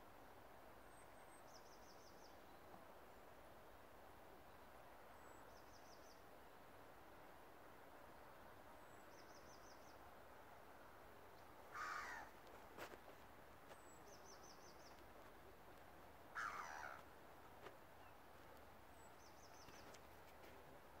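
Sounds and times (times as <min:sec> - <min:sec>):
faint steady hiss: 0:00.0 - 0:21.0.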